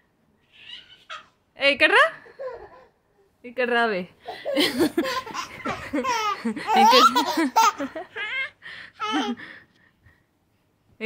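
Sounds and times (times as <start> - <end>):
baby laughing: 4.3 - 9.4.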